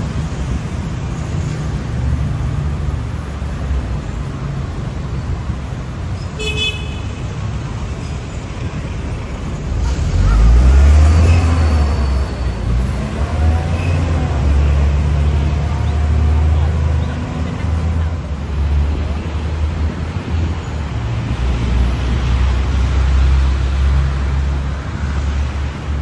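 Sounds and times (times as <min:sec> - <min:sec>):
street traffic rumbling: 0:00.0 - 0:26.0
vehicle horn toot: 0:06.4 - 0:07.2
heavy vehicle passing: 0:09.4 - 0:26.0.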